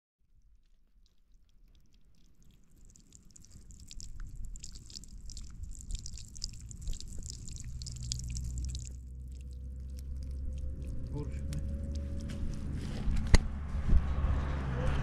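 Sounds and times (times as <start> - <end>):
water splashing onto stones: 0.5 - 12.8
low rumble: 5.1 - 15.0.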